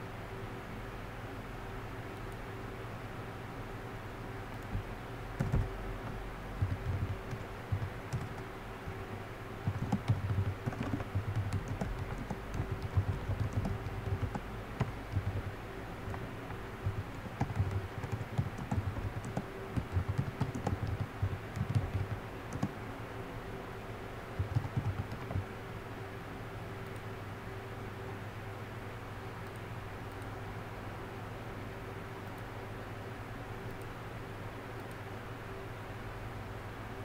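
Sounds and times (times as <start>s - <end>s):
steady low hum: 0.0s - 37.0s
typing on a keyboard: 4.6s - 8.5s, 9.6s - 22.8s, 24.4s - 25.5s.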